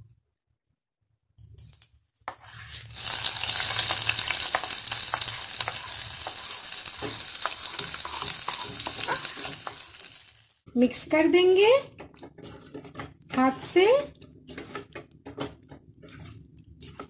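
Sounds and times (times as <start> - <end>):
hot ghee sizzling with pops: 2.3 - 10.7.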